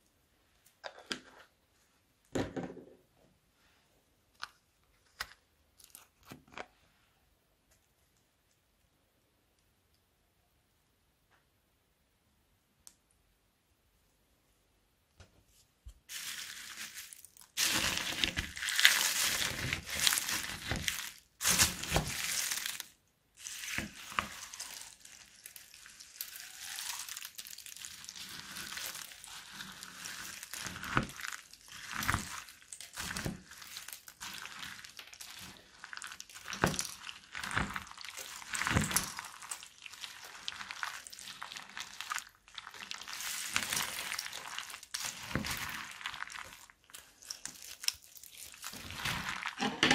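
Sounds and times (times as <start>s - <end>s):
plastic pieces crunching in glass bowl: 16.1s - 49.9s.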